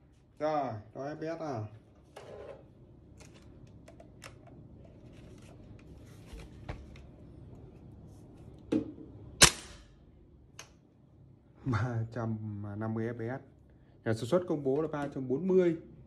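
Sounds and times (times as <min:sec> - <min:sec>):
airsoft rifle shot: 0:09.4 - 0:09.9.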